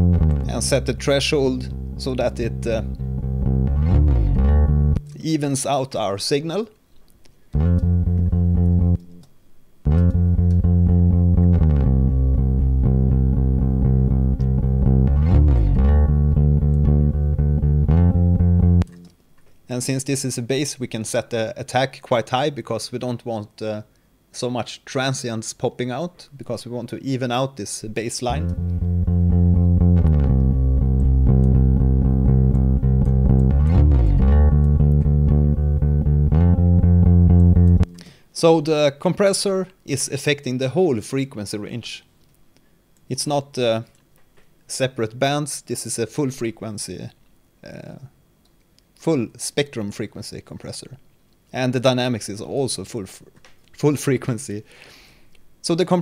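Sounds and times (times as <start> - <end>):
bass line: 0.0 - 5.2, 7.6 - 9.2, 9.8 - 19.1, 28.3 - 38.0.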